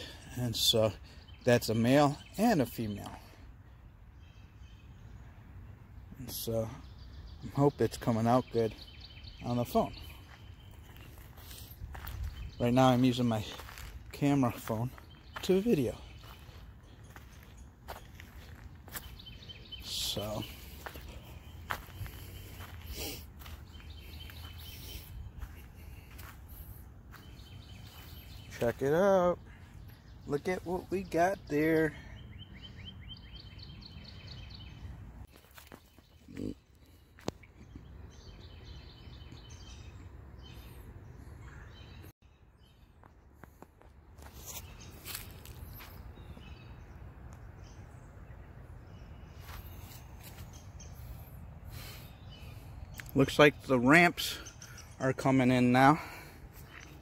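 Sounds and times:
footsteps crunching on dry leaves: 10.0 - 28.7, 44.2 - 46.5, 49.3 - 51.3.

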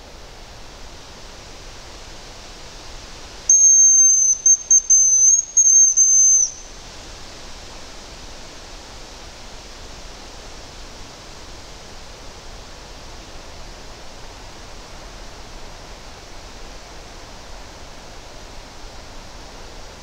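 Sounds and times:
high thin decoy whistle: 3.5 - 6.8.

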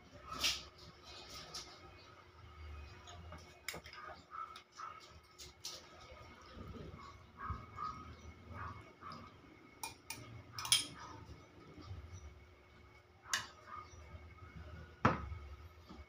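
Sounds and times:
dishes and utensils clinking: 9.8 - 11.1.

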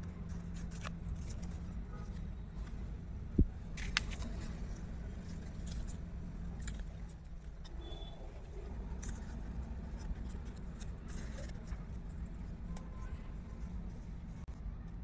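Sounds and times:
steady low rumble: 0.0 - 7.7
paper crackling: 0.0 - 14.5.

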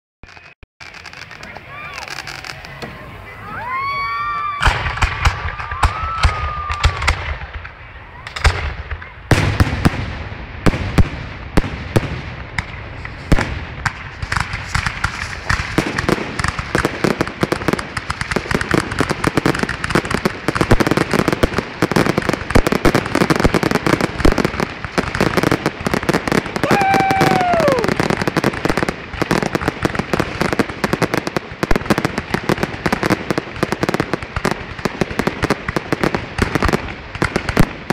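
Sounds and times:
fireworks bangs and crackles: 0.2 - 37.9.

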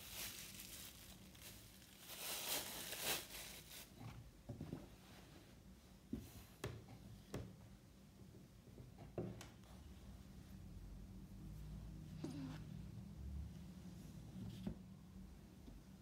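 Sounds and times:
plastic wrap crinkling: 0.0 - 4.0.

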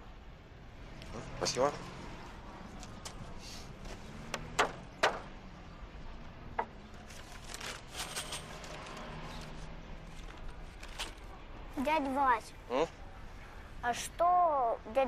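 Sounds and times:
hammer knocking nails into wood: 4.3 - 5.3.

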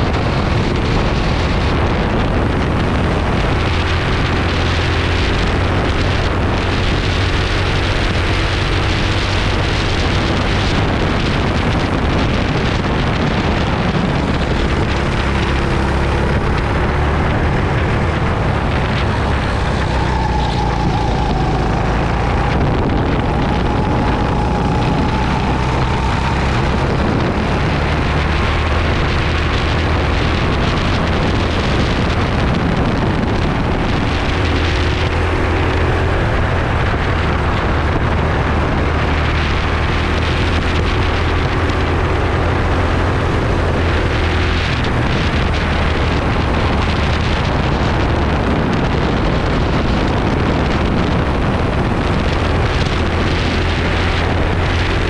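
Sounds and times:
faint whine: 0.0 - 34.8
go-kart engine running: 0.0 - 55.0
wind and road noise: 0.0 - 55.0.

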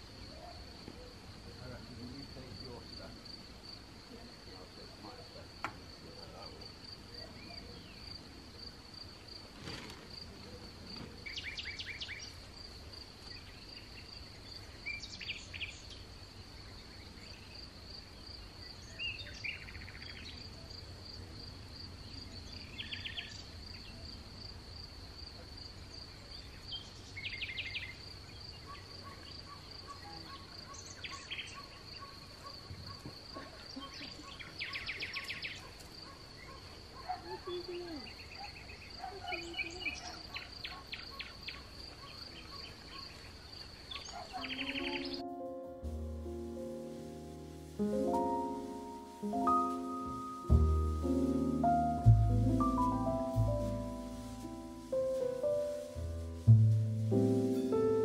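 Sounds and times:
songbird singing: 0.0 - 24.3, 25.0 - 58.0
cricket chirping: 0.0 - 58.0.

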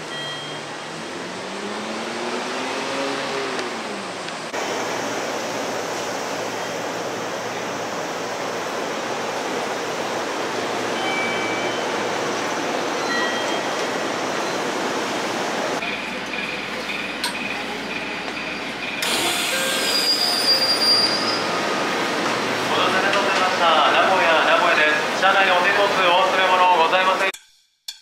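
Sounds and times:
electric train running noise: 4.4 - 24.6
high wheel squeals: 18.0 - 21.9.

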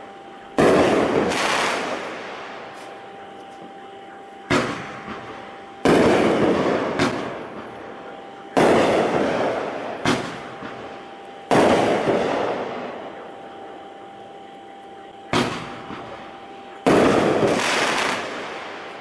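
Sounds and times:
firework launch pops: 0.6 - 2.0, 10.0 - 10.8, 15.3 - 16.1, 16.9 - 18.4.

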